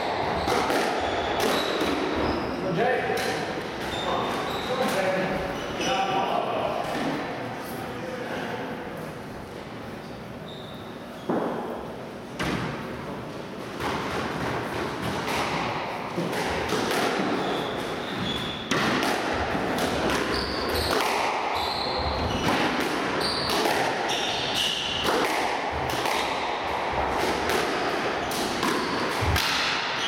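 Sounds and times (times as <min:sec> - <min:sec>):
shoes squeaking on wooden floor: 0:00.1 - 0:02.6, 0:03.8 - 0:06.0, 0:10.4 - 0:11.4, 0:17.2 - 0:18.7, 0:20.2 - 0:21.0, 0:21.6 - 0:22.6
squash ball cracking off rackets: 0:18.6 - 0:21.5, 0:22.4 - 0:30.0.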